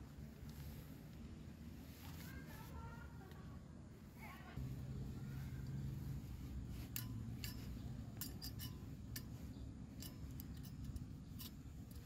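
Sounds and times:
metal stove legs clicking: 6.9 - 12.0.

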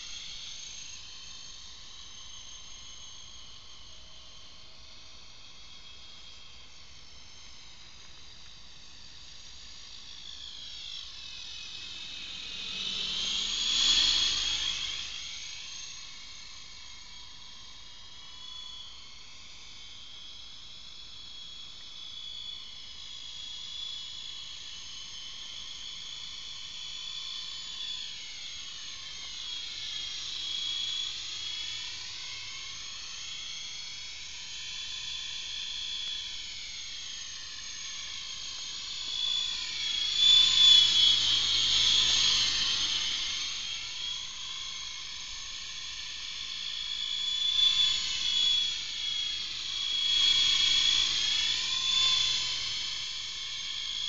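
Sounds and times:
model helicopter whine: 0.0 - 54.0.

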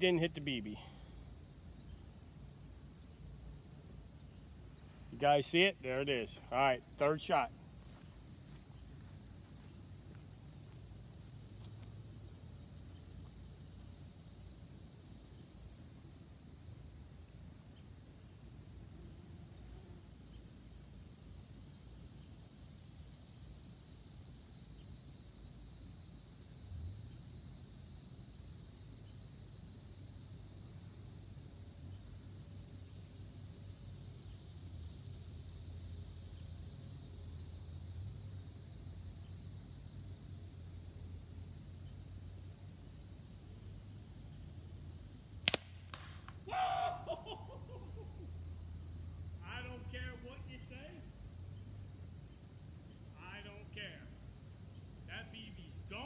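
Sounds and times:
high-pitched insect chorus: 0.0 - 56.0.

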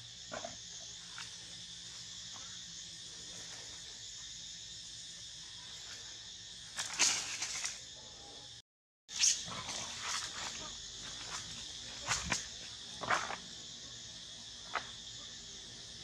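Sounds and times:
insects chorus: 0.0 - 16.0
rustle of branches and leaves: 6.7 - 7.8.

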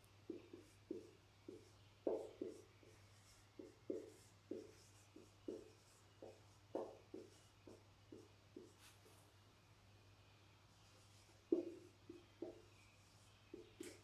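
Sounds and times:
marker writing on whiteboard: 0.2 - 9.2, 10.8 - 14.0.

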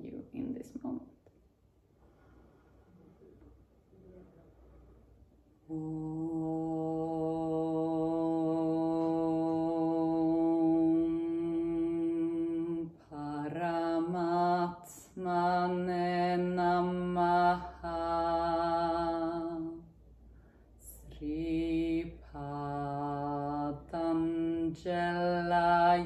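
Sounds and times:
person chanting a mantra: 5.6 - 19.9, 20.8 - 26.0.

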